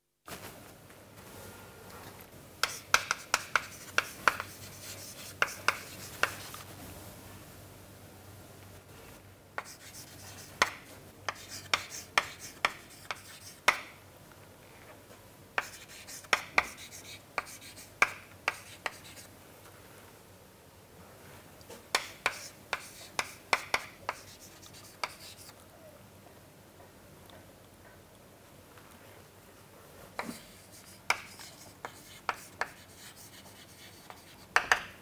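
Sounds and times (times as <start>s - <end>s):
chalk writing on chalkboard: 2.6s - 6.6s, 9.6s - 13.9s, 15.6s - 19.3s, 21.9s - 25.5s, 30.2s - 34.9s.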